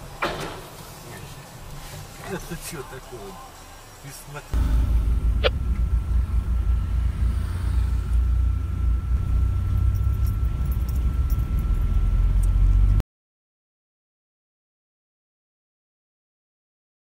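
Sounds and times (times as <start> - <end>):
thin steady whine: 0.0 - 13.0
car driving rumble from inside: 4.6 - 13.0.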